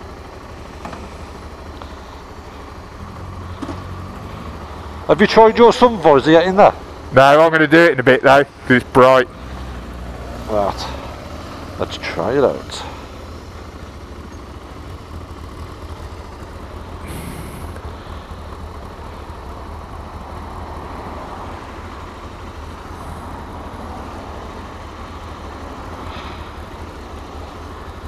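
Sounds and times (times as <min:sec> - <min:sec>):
motorcycle engine running: 0:00.0 - 0:28.0
road rumble: 0:00.0 - 0:28.0
short hisses: 0:17.0 - 0:18.3.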